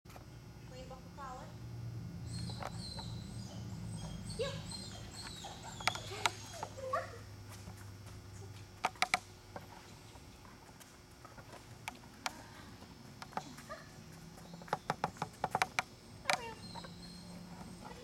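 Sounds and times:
dog whining: 2.3s - 7.3s, 16.3s - 18.0s
sharp taps: 14.6s - 16.5s.

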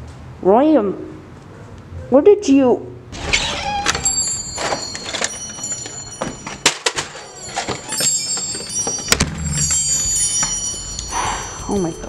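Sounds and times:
faint high ringing tones: 3.6s - 12.0s.

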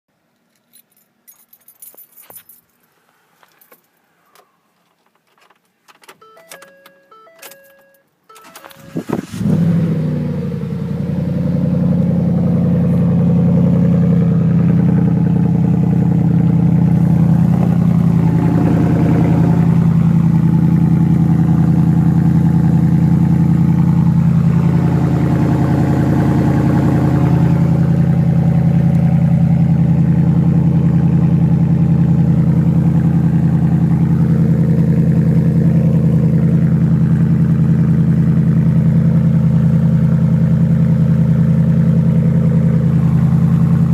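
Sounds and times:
truck engine idling: 10.1s - 43.9s.

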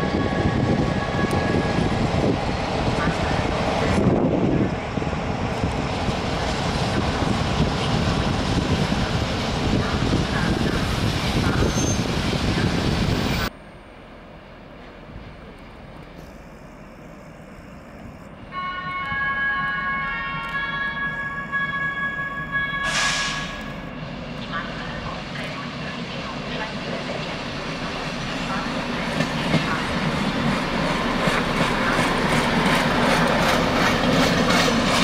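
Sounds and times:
freight train rumbling on rails: 0.0s - 35.0s
station background noise: 0.5s - 35.0s
railcar high squealing tones: 9.8s - 13.5s, 18.4s - 23.9s.

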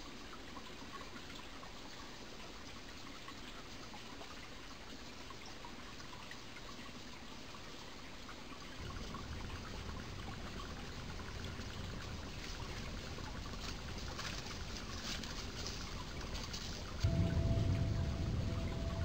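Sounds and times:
mountain stream rushing: 8.8s - 19.0s.

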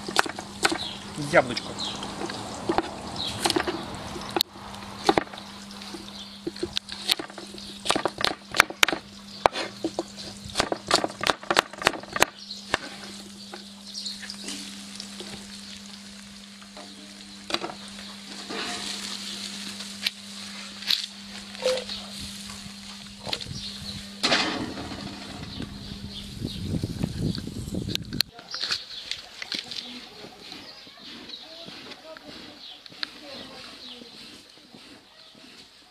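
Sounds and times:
knife chopping on wooden board: 6.4s - 12.9s
food sizzling in a wok: 12.4s - 22.5s.

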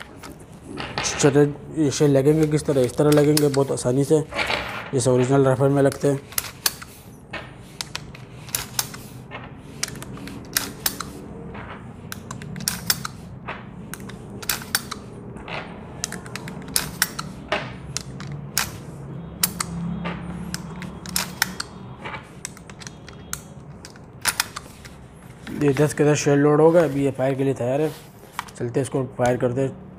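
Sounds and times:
sharp clicks of airgun loading: 20.6s - 21.8s.

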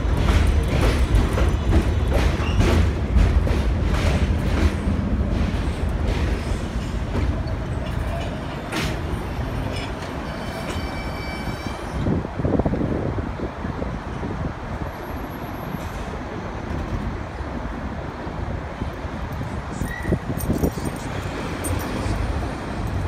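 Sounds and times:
train wheels clacking over rail joints: 0.0s - 11.4s
heavy train rumble: 0.0s - 23.0s
faint high squeal: 10.2s - 12.0s.

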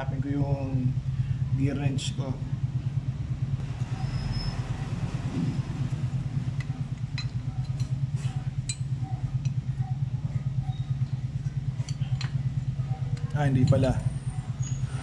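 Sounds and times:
low fluttering mechanical drone: 0.0s - 15.0s
wrench clinking on metal: 6.6s - 8.0s, 8.6s - 9.6s, 11.8s - 14.8s.

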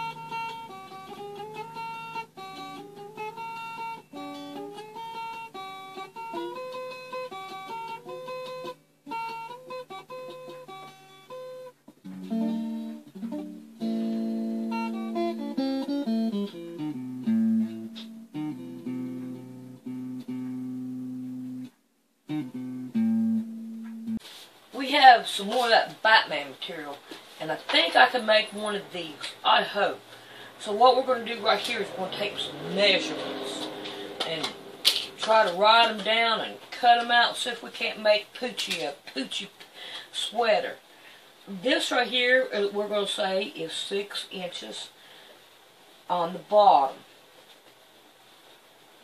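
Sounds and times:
plucked instrumental music: 0.0s - 24.4s, 30.7s - 37.1s.

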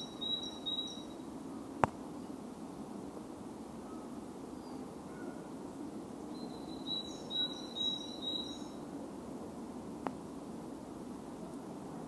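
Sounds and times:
songbird singing high notes: 0.0s - 1.2s, 6.4s - 8.8s
faint distant bird notes: 0.0s - 1.3s, 6.3s - 8.8s.

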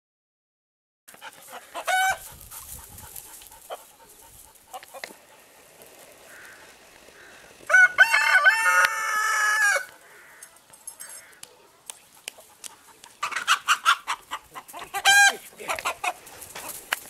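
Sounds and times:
rooster crowing: 1.5s - 2.2s, 6.3s - 11.4s
soft clucking: 10.0s - 16.8s.

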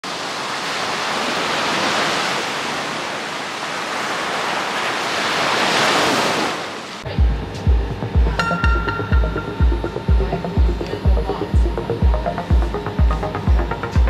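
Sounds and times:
waves breaking on beach: 0.0s - 7.1s.

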